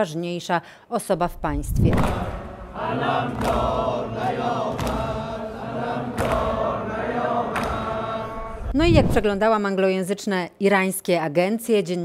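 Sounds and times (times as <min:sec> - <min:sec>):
crowd chanting in unison: 0:01.9 - 0:08.8.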